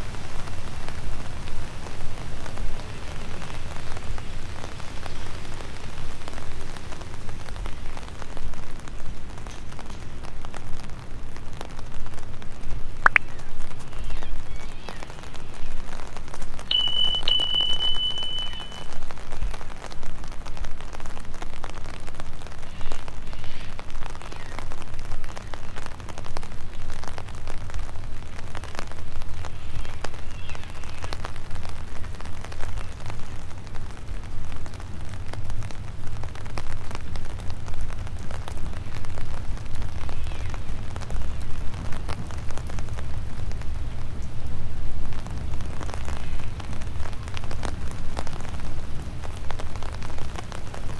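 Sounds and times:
steady rain with drops ticking: 0.0 - 50.9
high steady beep: 16.7 - 18.9.

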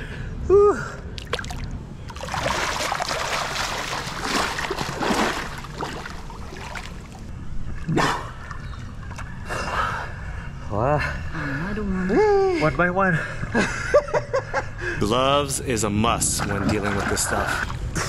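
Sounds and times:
sharp splash or breath: 1.2 - 7.2
water splashing and churning: 1.2 - 7.3, 16.2 - 18.0.

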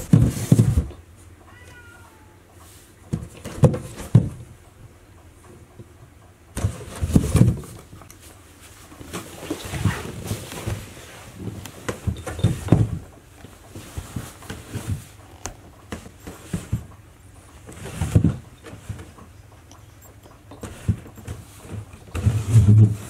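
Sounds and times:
cardboard box scraping on wood floor: 22.2 - 23.0.

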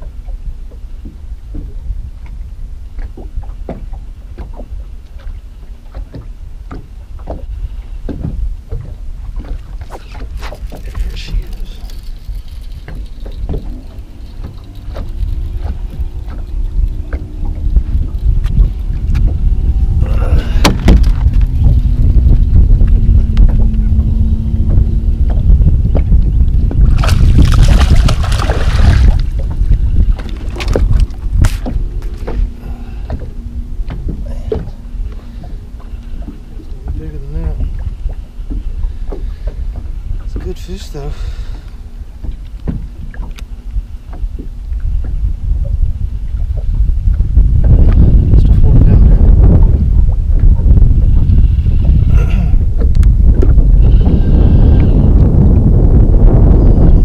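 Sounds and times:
waves slapping boat hull: 0.0 - 57.0
wind on microphone: 0.0 - 57.0
fish splashing at water surface: 27.0 - 29.3.

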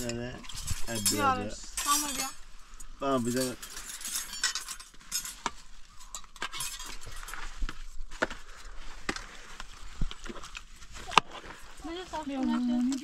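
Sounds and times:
dishes and utensils clinking: 0.0 - 2.4, 3.2 - 7.5.

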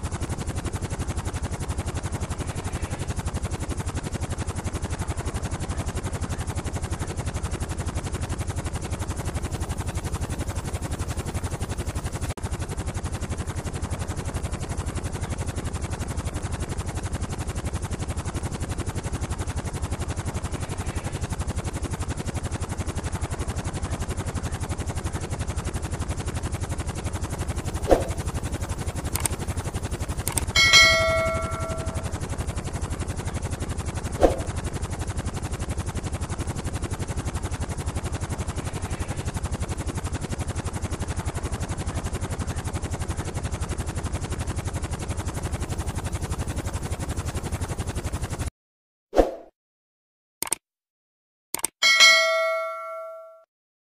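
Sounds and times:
helicopter rotor chopping: 0.0 - 48.5
sharp clicks: 29.1 - 29.4, 30.2 - 30.5, 50.4 - 50.6, 51.6 - 51.8
ringing ding: 30.6 - 32.1, 51.8 - 53.5.

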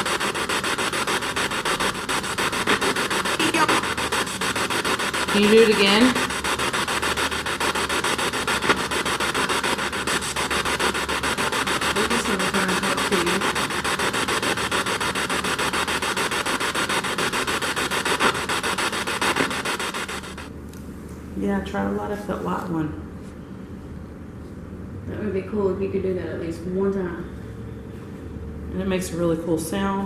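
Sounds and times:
fast even ticking: 0.0 - 20.5
radio static hiss: 3.2 - 4.4, 18.0 - 20.5.

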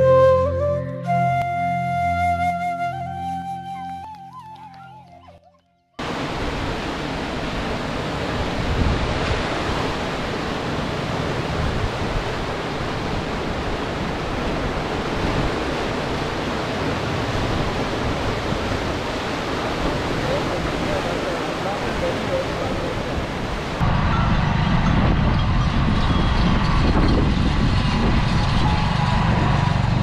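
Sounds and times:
water rushing over a weir: 6.0 - 23.9.

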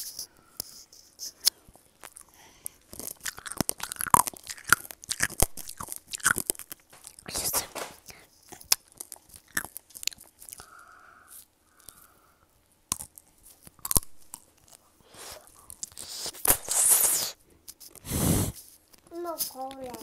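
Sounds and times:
sugar shell cracking and crunching: 1.4 - 12.2, 12.8 - 16.9.

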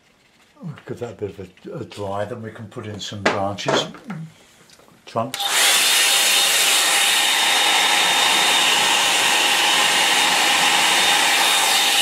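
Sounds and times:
hair dryer blowing: 5.4 - 12.0.

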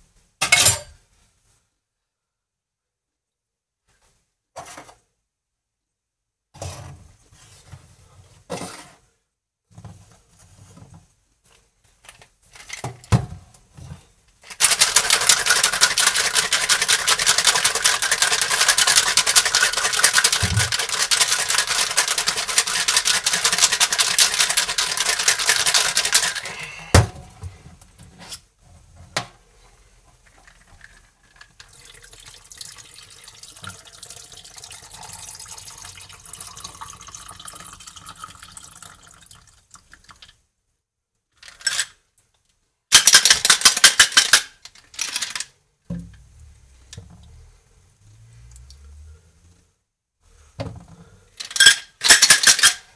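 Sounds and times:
ice rattling in cocktail shaker: 14.5 - 26.9, 30.2 - 40.3, 51.4 - 52.9
shaker knocks and clinks: 14.6 - 26.9
drink pouring over ice: 30.5 - 40.3.

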